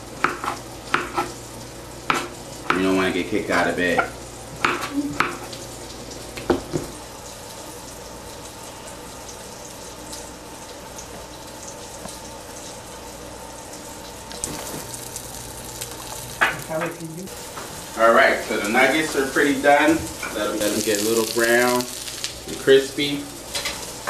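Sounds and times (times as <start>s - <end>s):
nuggets sizzling in oil: 13.9s - 24.0s.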